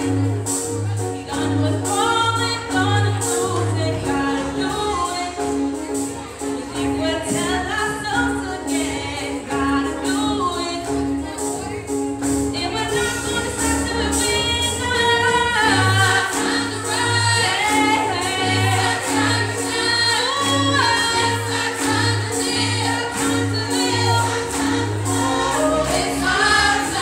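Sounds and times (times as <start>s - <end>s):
keyboard accompaniment: 0.0s - 27.0s
vocal ensemble singing in harmony: 12.6s - 27.0s.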